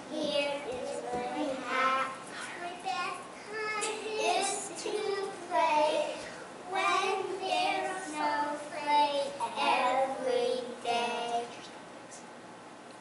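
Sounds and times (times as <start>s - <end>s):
children singing: 3.5s - 11.5s.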